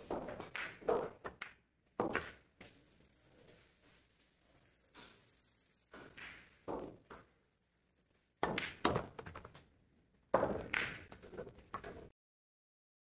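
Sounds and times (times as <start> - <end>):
pool balls clacking: 0.0 - 2.4, 8.4 - 9.6, 10.4 - 12.1.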